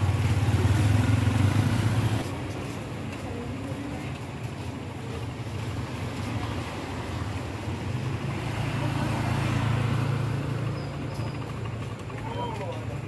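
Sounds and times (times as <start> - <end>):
motorcycle passing close: 0.0 - 2.3, 5.9 - 13.0
motorcycle engines humming: 0.0 - 13.0
road noise: 0.0 - 13.0.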